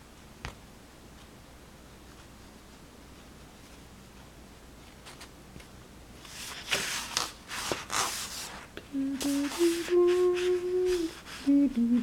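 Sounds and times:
scratchy rubbing: 6.3 - 11.5
person humming a tune: 8.9 - 12.0.

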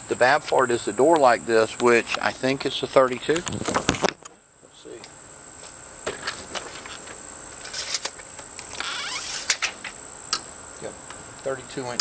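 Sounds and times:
steady high-pitched whine: 0.0 - 12.0
tape measure whirring rasp: 6.3 - 10.0.

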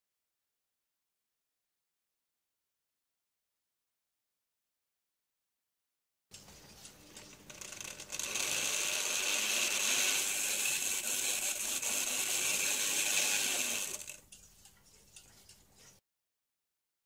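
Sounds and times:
small electric motor and gears running: 7.3 - 14.2.

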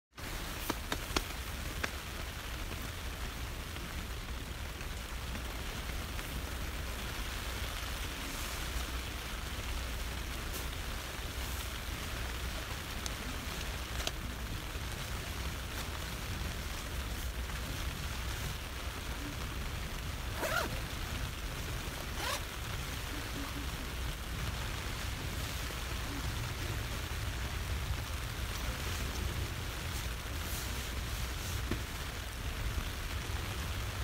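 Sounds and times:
rain pattering on tent fabric: 0.1 - 34.0
nylon clothing rustling: 20.3 - 20.9, 22.0 - 22.5
jacket zip: 20.4 - 20.8, 22.2 - 22.4.

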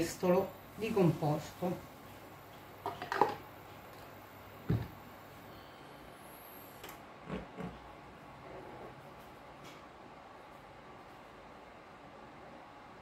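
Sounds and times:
dull thump: 4.7 - 5.0.

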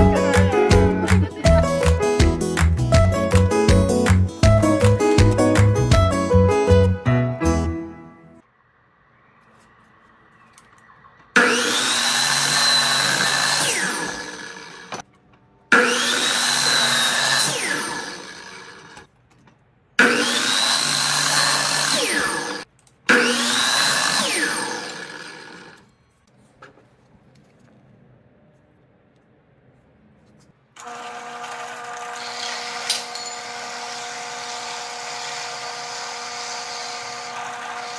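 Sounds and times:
miter saw whining: 9.4 - 15.0, 15.7 - 19.1, 20.0 - 26.0, 30.8 - 37.9.

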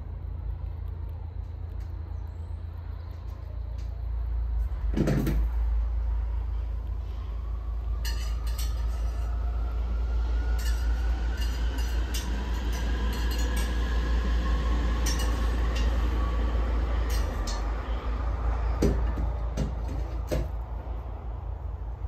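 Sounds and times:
steady low rumble: 0.0 - 22.0
faint rising whine: 5.5 - 22.0.

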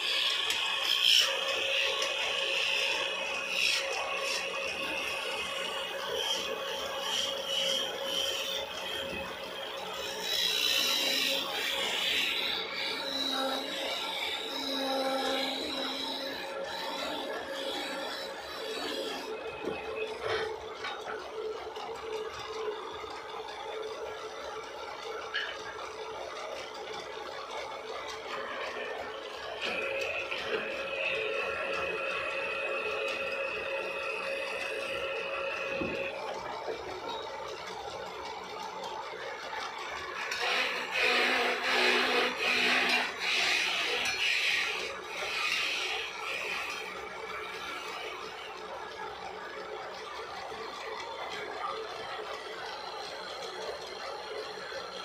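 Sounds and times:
wood rasping by hand: 0.0 - 20.2
lathe running with hum: 0.0 - 55.0.

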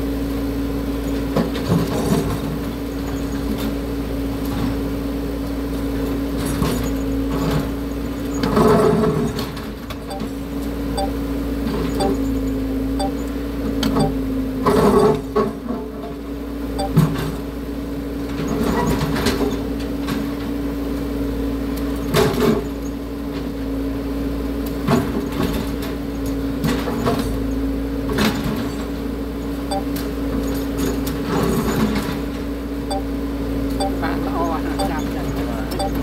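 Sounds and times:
excavator diesel engine running: 33.8 - 36.0.

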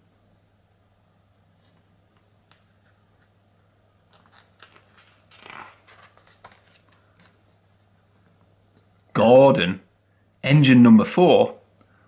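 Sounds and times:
page turning rustle: 4.1 - 7.5.

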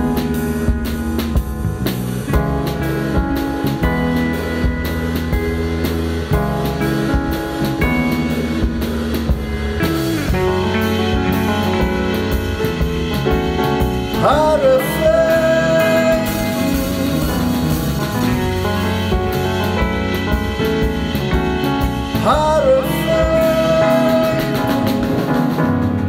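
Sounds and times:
drum kit: 0.0 - 26.0
electric bass: 0.0 - 26.0
electric guitar: 0.0 - 26.0
keyboard: 0.0 - 26.0.

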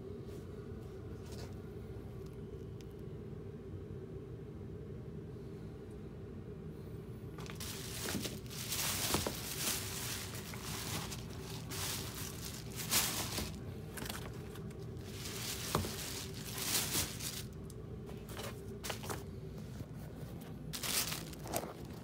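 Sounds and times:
steady low hum: 0.0 - 22.0
rustling handling noise: 7.4 - 22.0.

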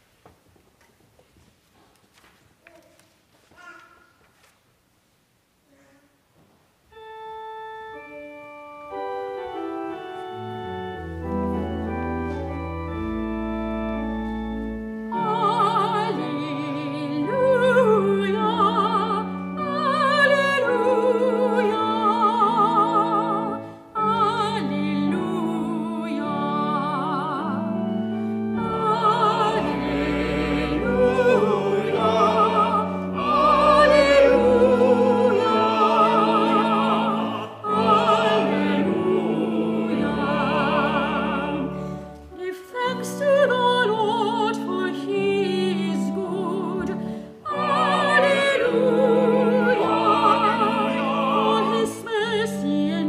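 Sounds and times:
organ playing chords: 6.9 - 42.4, 43.3 - 52.9
vocal ensemble singing: 28.6 - 42.2, 43.0 - 53.0.

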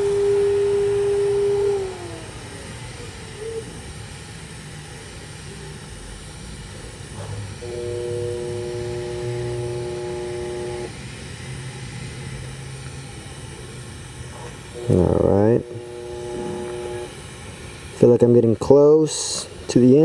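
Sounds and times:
cluster of steady tones: 0.0 - 3.3, 7.6 - 18.0
welding hum and hiss: 0.0 - 20.0.

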